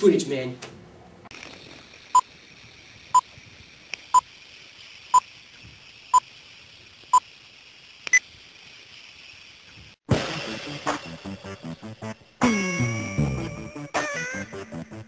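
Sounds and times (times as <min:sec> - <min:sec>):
film projector hiss: 0:01.3 - 0:11.6.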